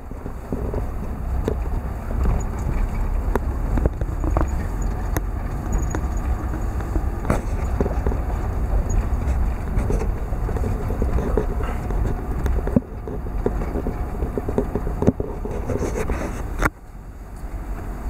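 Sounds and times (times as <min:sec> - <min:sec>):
engine and tyres rumbling: 0:00.0 - 0:18.0.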